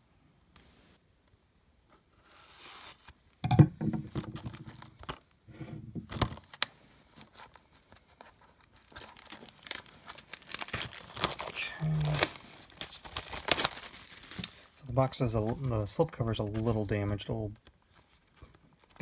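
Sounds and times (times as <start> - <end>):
plastic wrap crinkling and tearing: 6.2 - 19.0.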